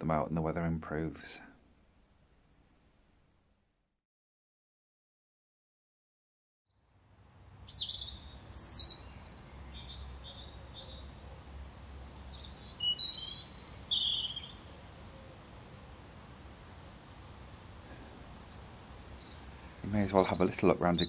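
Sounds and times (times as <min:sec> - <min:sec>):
songbird singing: 0:06.7 - 0:21.0.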